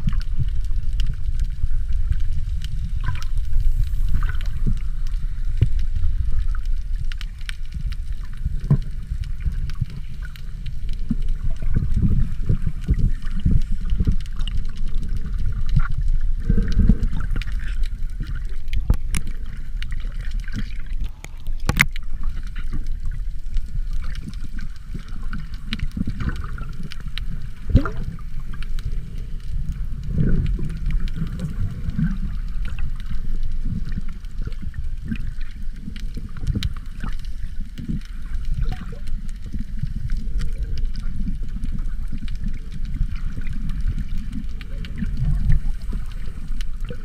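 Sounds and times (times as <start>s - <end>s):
muffled underwater rumble: 0.0s - 47.0s
swimming strokes swishing and bubbling: 0.0s - 47.0s.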